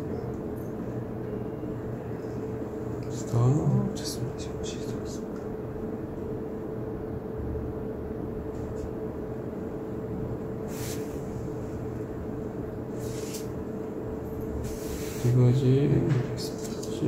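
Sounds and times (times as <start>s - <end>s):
low machine hum: 0.0s - 17.0s
short hissing rustles: 10.7s - 11.3s, 12.9s - 13.6s, 14.6s - 15.4s.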